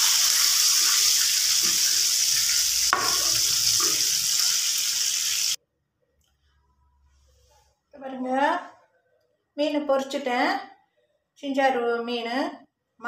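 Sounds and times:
fish sizzling in hot oil: 0:00.0 - 0:05.6.

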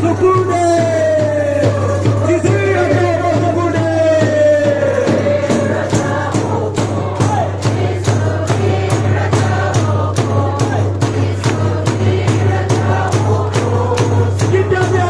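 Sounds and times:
congregation singing a worship song: 0:00.0 - 0:15.0
tambourine: 0:00.0 - 0:15.0
hand clapping: 0:10.6 - 0:12.0.

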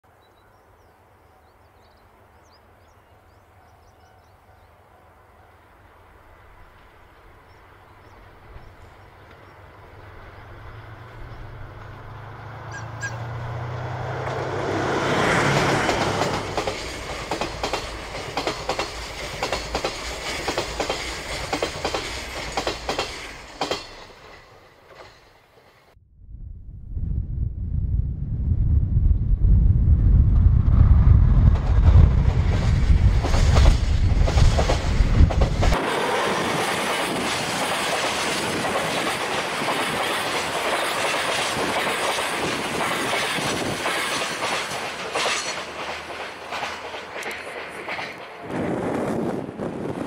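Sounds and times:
diesel locomotive engine drone: 0:01.4 - 0:26.7, 0:27.4 - 0:50.0
wheels clicking over rail joints: 0:15.4 - 0:25.9, 0:36.5 - 0:48.5.

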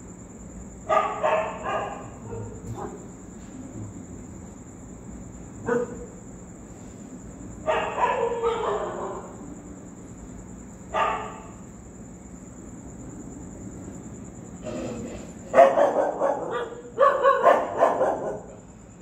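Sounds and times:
dogs barking: 0:00.8 - 0:03.1, 0:05.6 - 0:06.2, 0:07.6 - 0:09.4, 0:10.9 - 0:11.6, 0:14.6 - 0:18.7.

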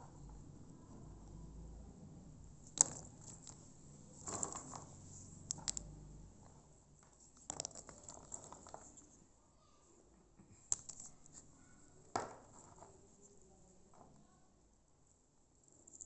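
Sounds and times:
dried nuts clicking together: 0:02.6 - 0:03.6, 0:05.4 - 0:05.9, 0:07.3 - 0:09.0, 0:10.7 - 0:11.1.

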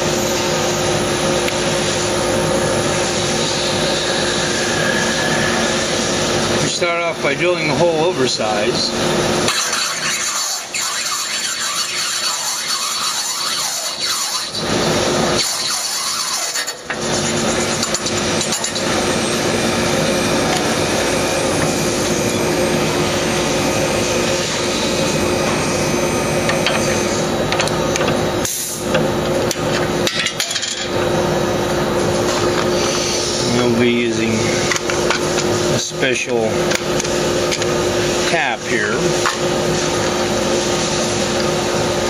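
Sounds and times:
electric drill boring metal: 0:00.0 - 0:28.4.

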